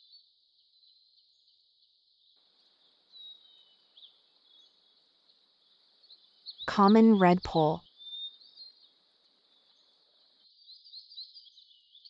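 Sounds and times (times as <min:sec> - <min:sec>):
faint bird chirps: 0:03.1 - 0:05.0, 0:06.0 - 0:08.9.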